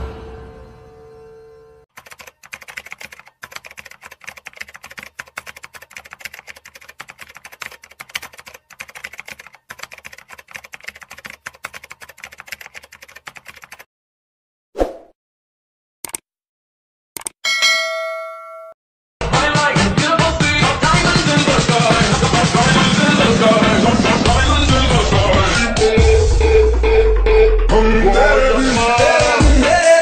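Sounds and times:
keyboard typing: 1.9s - 13.9s.

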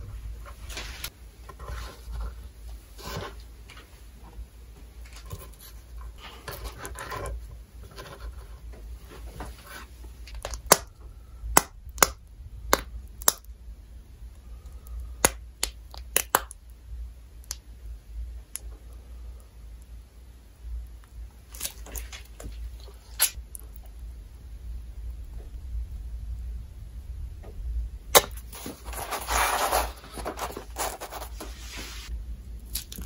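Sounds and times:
food rustling on cutting board: 28.4s - 32.1s.

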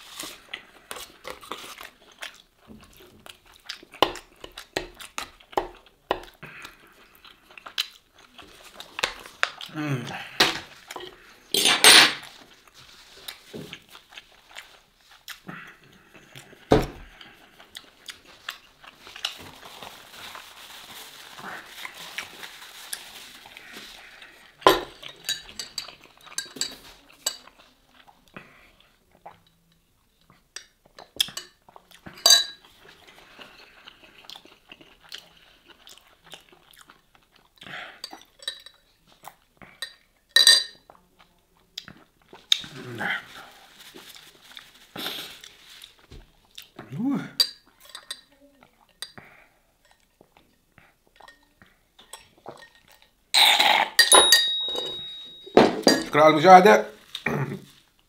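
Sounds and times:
metal straw clinking against ice: 53.4s - 56.1s.

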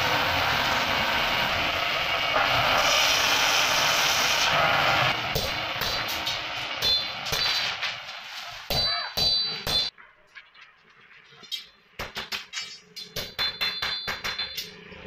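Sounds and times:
hammer clanging on steel: 8.7s - 9.9s, 12.0s - 14.9s.

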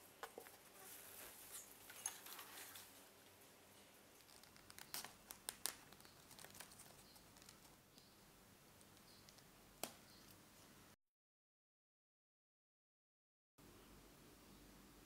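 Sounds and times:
twine crinkling and rustling: 0.3s - 7.8s.

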